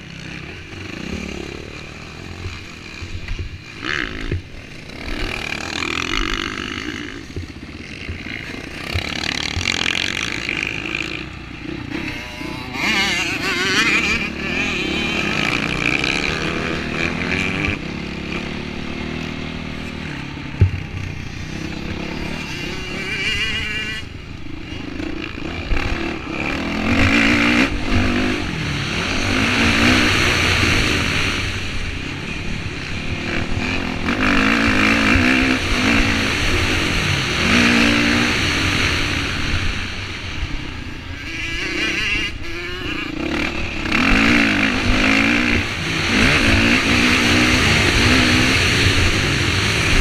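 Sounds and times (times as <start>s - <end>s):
dirt bike engine revving: 0.0s - 50.0s.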